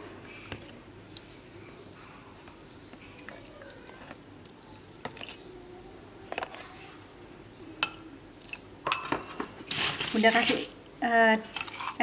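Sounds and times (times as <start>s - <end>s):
metal spoon scooping jelly: 2.6s - 5.5s.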